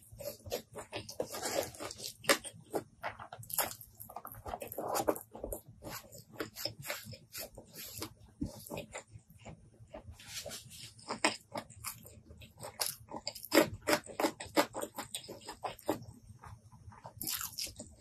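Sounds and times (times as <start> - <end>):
wet chewing: 0.0 - 10.1, 10.8 - 18.0
fingers squeezing sticky rice: 0.0 - 18.0.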